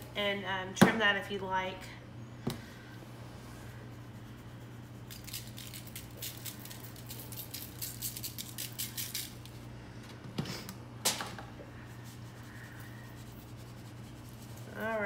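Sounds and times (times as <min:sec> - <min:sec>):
spice shaker rattling: 0:05.0 - 0:09.6.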